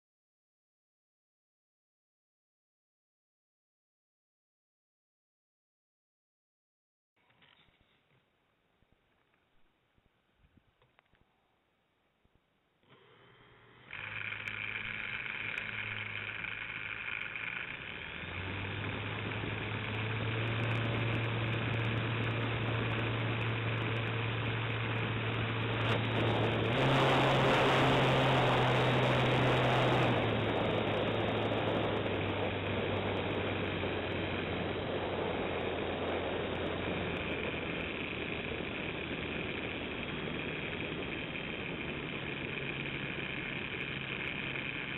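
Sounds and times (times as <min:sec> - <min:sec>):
model airplane motor running: 0:12.8 - 0:44.9.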